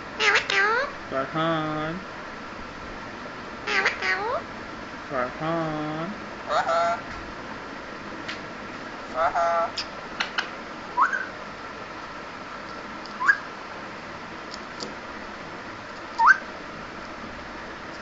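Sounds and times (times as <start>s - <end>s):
rising whistles: 11.0s - 11.4s, 13.2s - 13.5s.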